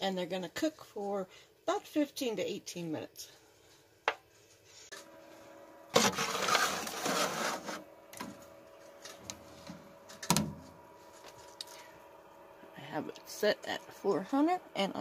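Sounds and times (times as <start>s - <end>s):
oven humming: 4.9s - 15.0s
foil pan scraping and crinkling: 6.0s - 7.9s
oven glass door shutting: 9.6s - 10.7s.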